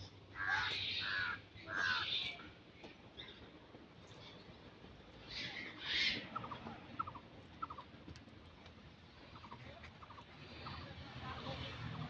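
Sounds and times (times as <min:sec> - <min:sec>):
harsh bird calls: 0:00.0 - 0:03.5, 0:05.2 - 0:07.9.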